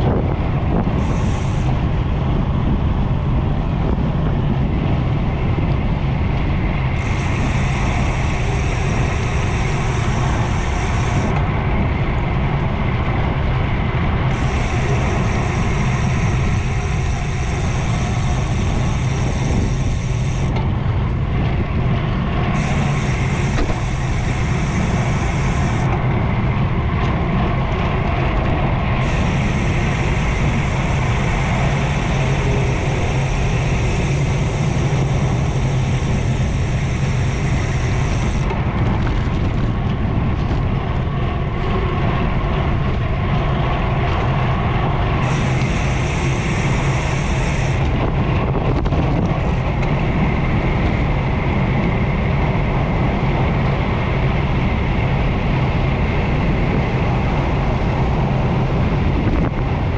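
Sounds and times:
wind and road noise: 0:00.0 - 0:59.9
high hiss: 0:01.0 - 0:01.8, 0:06.9 - 0:11.4, 0:14.3 - 0:20.5, 0:22.5 - 0:26.0, 0:28.9 - 0:38.5, 0:45.2 - 0:47.8.

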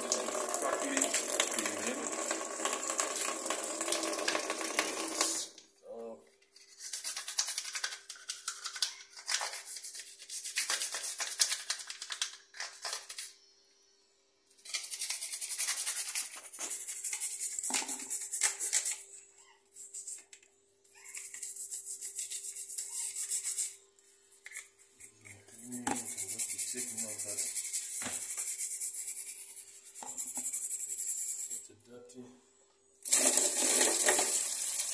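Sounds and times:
scrubbing plastic filter: 0:33.1 - 0:34.9.

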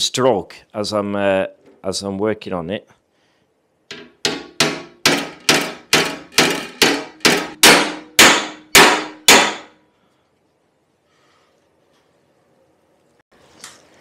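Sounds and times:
hammer clanging on steel: 0:03.9 - 0:09.7.

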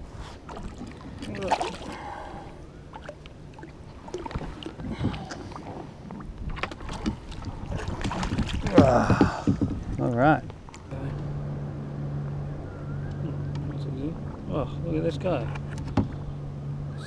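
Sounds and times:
low water wash: 0:00.0 - 0:17.0
knocks and clicks on kayak: 0:08.2 - 0:10.0
wavering tone: 0:11.2 - 0:14.8.

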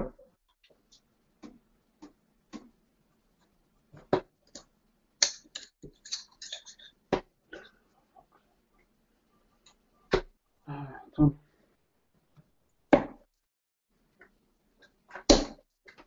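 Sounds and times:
darts striking a dartboard: 0:12.9 - 0:13.2.

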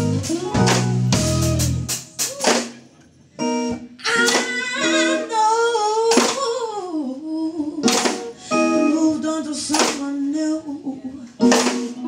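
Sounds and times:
woman singing lead: 0:00.0 - 0:02.5, 0:04.0 - 0:12.0
drums: 0:00.0 - 0:04.9, 0:07.8 - 0:08.4, 0:09.6 - 0:10.3, 0:11.3 - 0:12.0
bass guitar: 0:00.0 - 0:05.4
electric guitars: 0:00.0 - 0:12.0.

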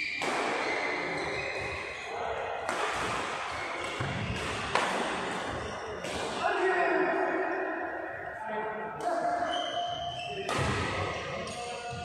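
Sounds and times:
rackets hitting shuttlecock: 0:00.0 - 0:02.0, 0:02.6 - 0:06.4, 0:10.4 - 0:12.0.

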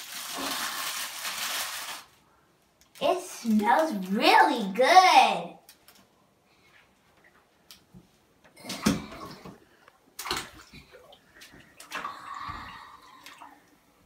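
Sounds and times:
water splashing in bathtub: 0:08.6 - 0:14.0.

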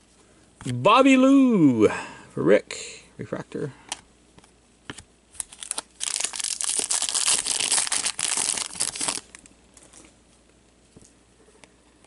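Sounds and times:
foil wrapper tearing and crinkling: 0:05.4 - 0:09.5.

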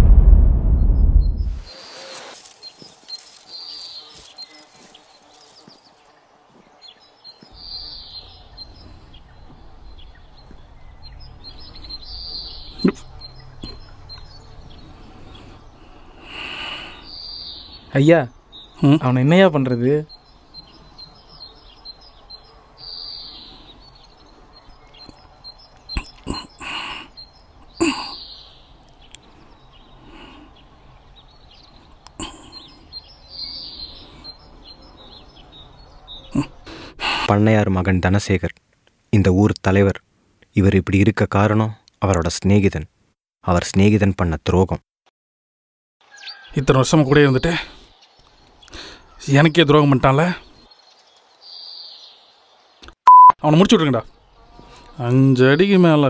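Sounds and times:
steady low rumble: 0:00.0 - 0:01.6
birds chirping: 0:00.8 - 0:42.9, 0:46.0 - 0:56.0.

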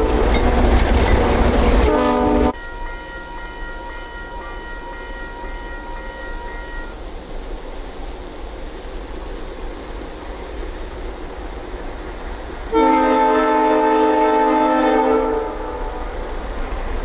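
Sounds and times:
diesel locomotives rumbling: 0:00.0 - 0:17.0
locomotive horn: 0:01.8 - 0:07.0, 0:12.7 - 0:16.3.

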